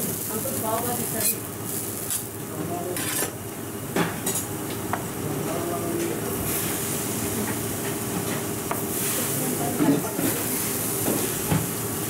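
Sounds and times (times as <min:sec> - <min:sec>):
food sizzling on hot plate: 0:00.0 - 0:03.5, 0:06.3 - 0:12.0
low kitchen hum: 0:00.0 - 0:12.0.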